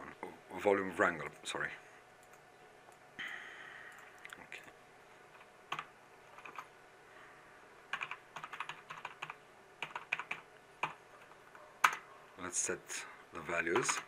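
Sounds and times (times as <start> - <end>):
typing on computer keyboard: 5.3 - 6.7, 7.9 - 12.0, 13.8 - 14.0.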